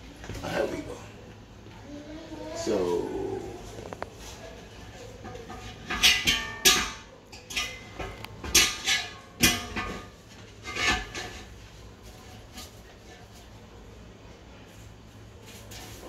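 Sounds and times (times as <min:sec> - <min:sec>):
metal pots clanking: 0:05.1 - 0:11.6.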